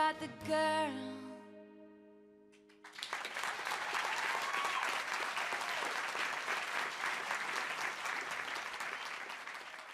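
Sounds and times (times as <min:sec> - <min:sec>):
guitar chord: 0:00.0 - 0:02.8
audience applauding: 0:02.7 - 0:09.9.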